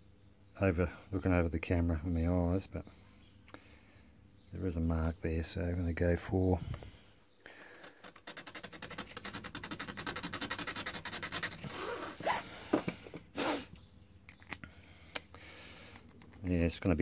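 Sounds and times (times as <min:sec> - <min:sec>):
handling clicks and scrapes: 0:07.7 - 0:13.2
file rasping on key blank: 0:07.9 - 0:12.2.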